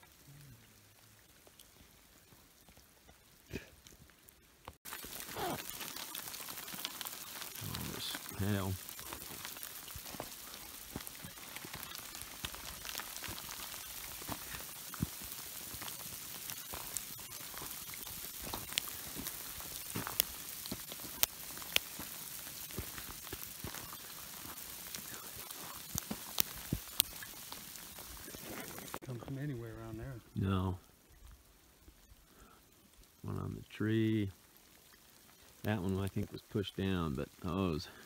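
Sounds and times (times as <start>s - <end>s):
sleet pellets ticking: 4.8s - 38.0s
sleet hissing: 4.9s - 6.2s, 7.3s - 9.1s.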